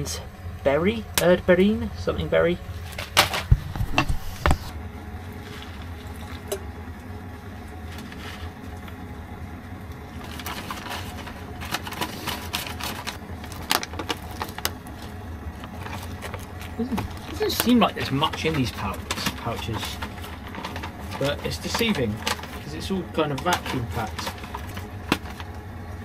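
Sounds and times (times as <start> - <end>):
low steady hum: 0.0 - 26.0
foil pouch crinkling and tearing: 10.1 - 26.0.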